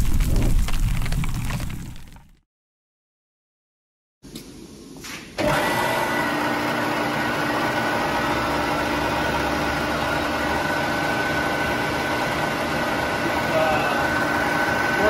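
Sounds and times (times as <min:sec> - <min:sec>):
lathe motor whining: 0:05.4 - 0:15.0.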